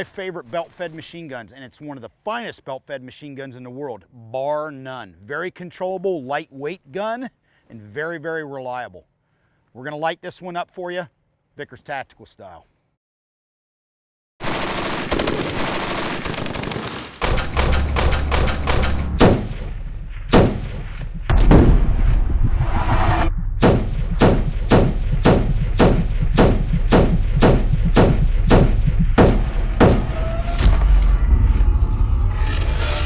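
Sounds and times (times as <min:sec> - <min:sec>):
machine gun firing: 0:14.4 - 0:21.7, 0:23.6 - 0:30.2
low rumble: 0:17.6 - 0:33.0.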